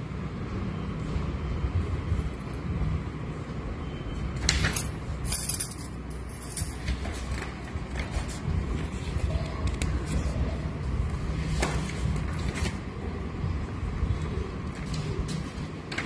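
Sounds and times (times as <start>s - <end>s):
scratchy paper rustling: 6.8s - 12.9s.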